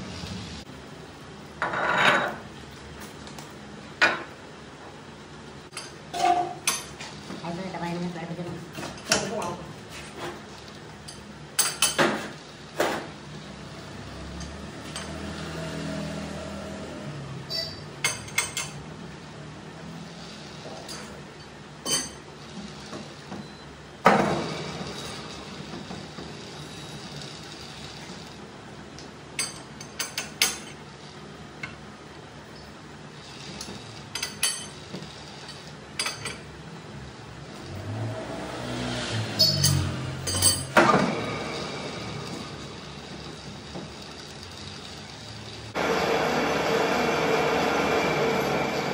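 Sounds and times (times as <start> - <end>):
metal tools clinking and knocking: 39.4 - 40.8.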